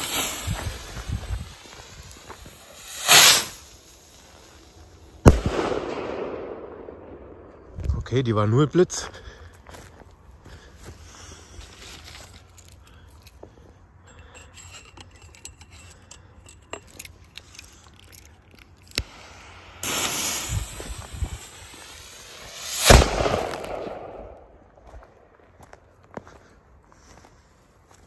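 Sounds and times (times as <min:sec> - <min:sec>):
firework rocket hissing: 0:00.0 - 0:05.8, 0:19.0 - 0:24.4
crackling sparks: 0:00.0 - 0:05.9, 0:17.1 - 0:24.6
firework bang: 0:02.8 - 0:03.7, 0:05.3 - 0:07.0, 0:19.8 - 0:21.5, 0:22.4 - 0:24.5.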